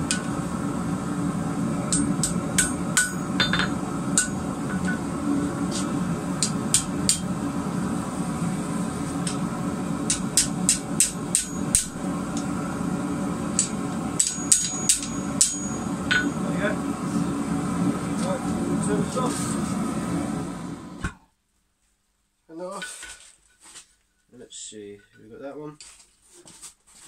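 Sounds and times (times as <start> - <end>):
steady rushing noise: 0.0 - 21.0
hammer striking steel on anvil: 1.9 - 5.1, 6.4 - 7.3, 10.0 - 12.4, 13.5 - 16.4.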